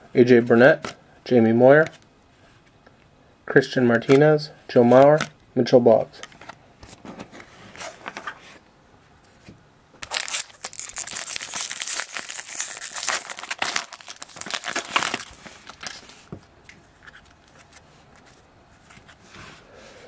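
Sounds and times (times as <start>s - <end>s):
foil wrapper tearing and crinkling: 10.0s - 16.1s.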